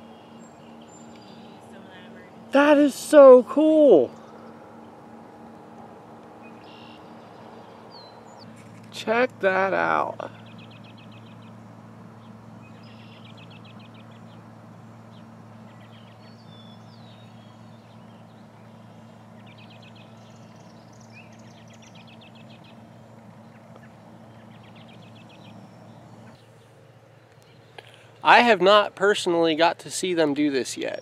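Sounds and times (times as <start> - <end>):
bird chirps: 0.0 - 2.2, 6.3 - 8.6, 10.2 - 28.1
birds singing high trills: 0.0 - 8.8, 9.5 - 28.2
steady low hum: 0.0 - 31.0.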